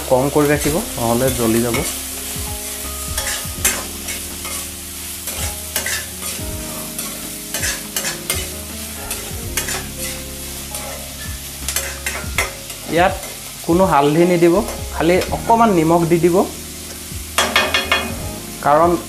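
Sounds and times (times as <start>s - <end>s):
vegetables sizzling in oil: 0.0s - 19.0s
spatula scraping and clinking pan: 1.3s - 10.2s, 10.8s - 13.6s, 16.9s - 18.2s.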